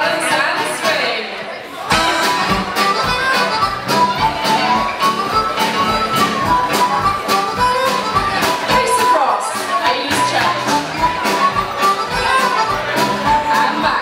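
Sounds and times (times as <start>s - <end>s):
steady dance beat: 1.9s - 4.4s
wind instrument melody: 1.9s - 14.0s.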